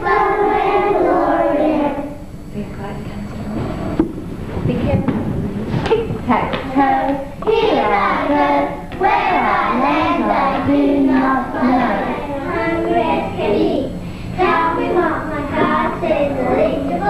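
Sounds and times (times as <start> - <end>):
children singing together: 0.0 - 2.2, 7.4 - 17.0
steady low hum: 0.0 - 17.0.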